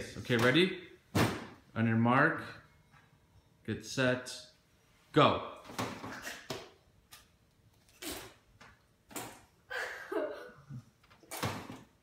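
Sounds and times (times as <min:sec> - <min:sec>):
child giggling: 0:09.7 - 0:10.9.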